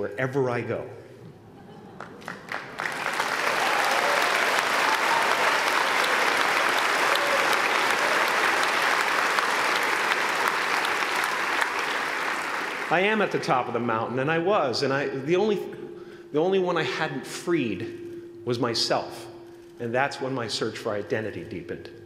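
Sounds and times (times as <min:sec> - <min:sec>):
large audience applauding: 0:02.0 - 0:13.2.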